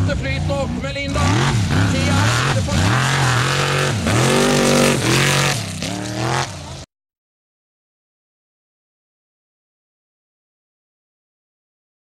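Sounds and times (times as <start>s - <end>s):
engine revving hard: 0.0s - 6.9s.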